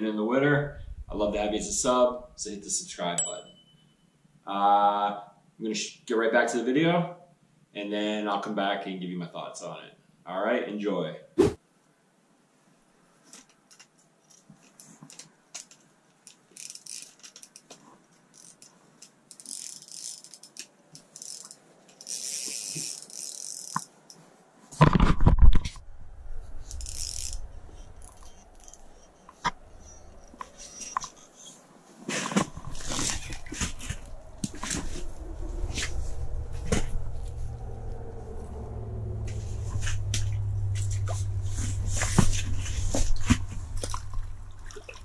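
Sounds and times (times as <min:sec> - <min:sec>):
low rumbling: 0:00.6 - 0:02.5, 0:25.7 - 0:30.6, 0:32.4 - 0:45.0
clothing and gear rustling: 0:26.7 - 0:38.2, 0:39.2 - 0:44.6.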